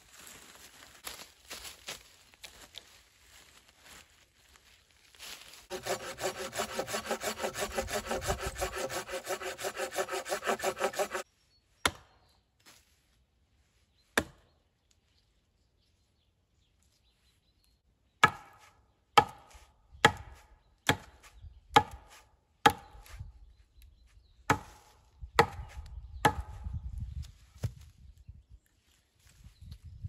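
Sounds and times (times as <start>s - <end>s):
hatchet chopping wooden pole: 5.7s - 11.2s, 11.8s - 12.1s, 14.2s - 14.4s, 18.2s - 23.2s, 24.5s - 26.7s.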